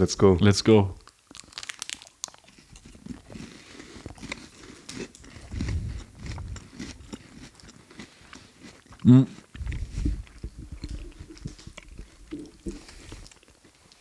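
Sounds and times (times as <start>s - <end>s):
crunching wafer bars: 1.0s - 9.5s.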